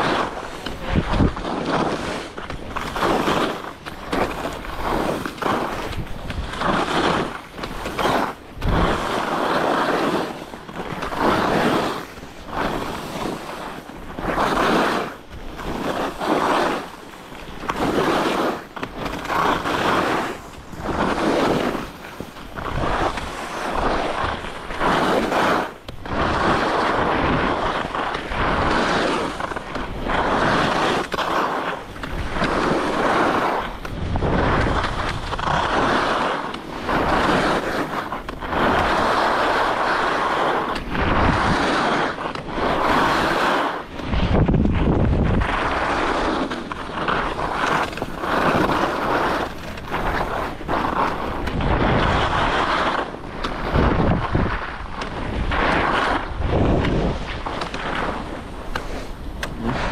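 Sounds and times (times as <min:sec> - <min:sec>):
ski edges scraping snow: 0:00.0 - 0:59.9.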